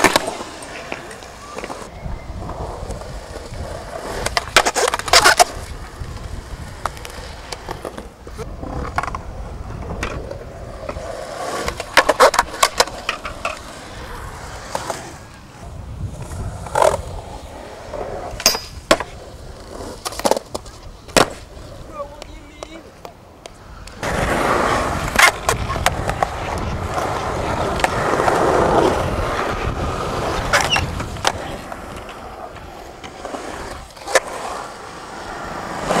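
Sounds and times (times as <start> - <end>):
skateboard wooden clacks: 0.0 - 1.9, 4.2 - 11.0, 11.6 - 13.7, 18.3 - 24.3
skateboard wheels rolling: 0.0 - 36.0.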